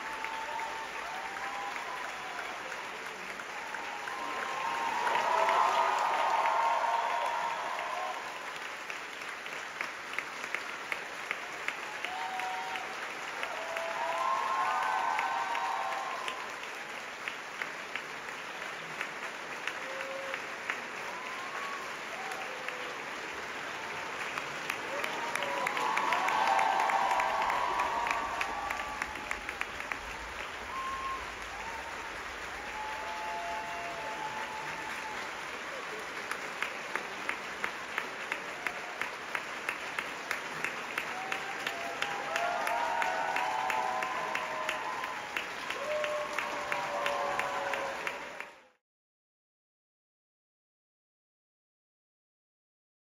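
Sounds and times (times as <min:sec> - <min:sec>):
sharp rhythmic claps: 0:00.0 - 0:48.5
audience applauding: 0:00.0 - 0:48.8.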